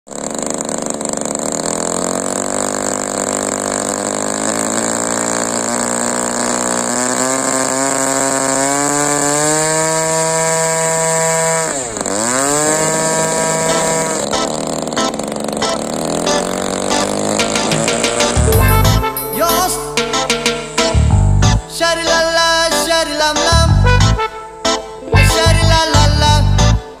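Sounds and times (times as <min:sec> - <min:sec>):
model plane engine revving: 0:00.1 - 0:19.1.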